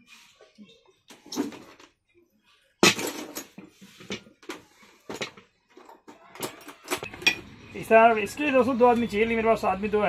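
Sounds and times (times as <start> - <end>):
metallic clatter and scraping: 2.8 - 7.8.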